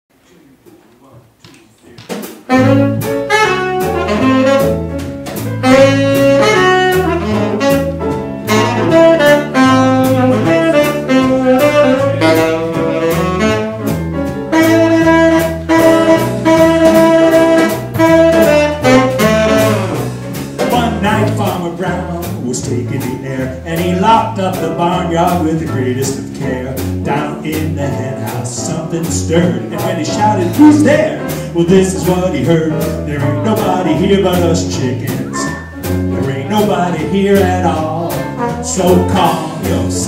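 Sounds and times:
jazz band playing: 2.0s - 40.0s
tenor saxophone melody: 2.5s - 21.3s, 38.2s - 40.0s.

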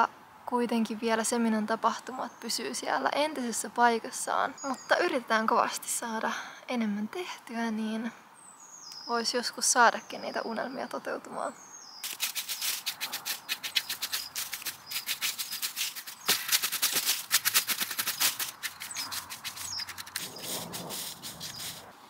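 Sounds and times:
rake scraping twigs: 12.0s - 22.0s.

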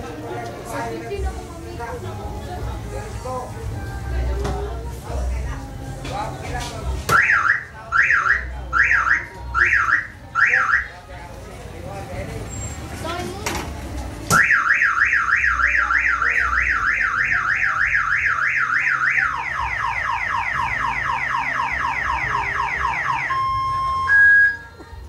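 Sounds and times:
car alarm siren: 7.1s - 10.9s, 14.3s - 24.7s
short loud alarm beep: 23.0s - 24.7s.

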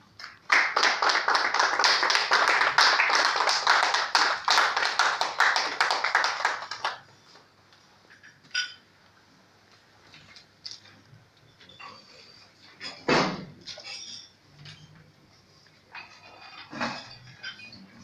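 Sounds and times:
small group applauding: 0.0s - 7.4s.

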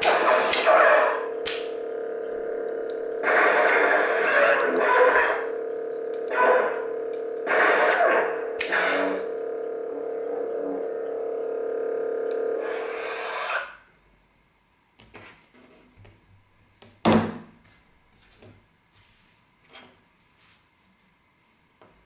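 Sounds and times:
lightsaber electric hum: 0.0s - 14.3s.

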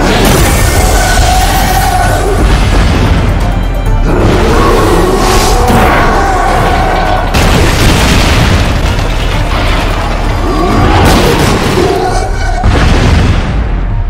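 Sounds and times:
crashing rubble: 0.0s - 3.6s, 5.7s - 13.8s
dramatic music score: 0.0s - 14.0s
heavy booming impacts: 6.8s - 14.0s.

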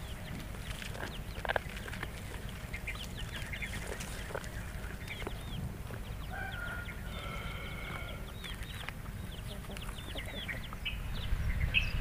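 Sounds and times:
chickens chirping: 0.0s - 12.0s
wind rumble on microphone: 0.0s - 12.0s
chicken long drawn-out call: 6.3s - 8.4s.

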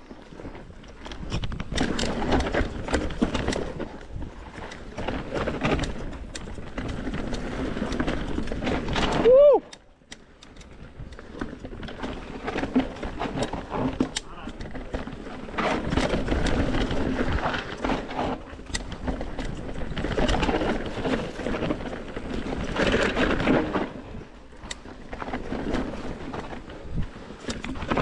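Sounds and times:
bike frame and chain rattle: 0.1s - 28.0s
bike tyre roar: 1.7s - 9.7s.

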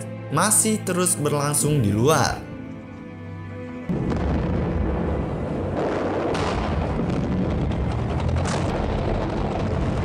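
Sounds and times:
artillery fire and explosions: 3.9s - 10.0s.

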